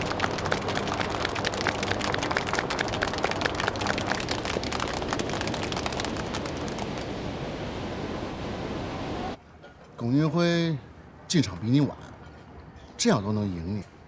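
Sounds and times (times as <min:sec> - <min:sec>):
group of people applauding: 0:00.0 - 0:07.2.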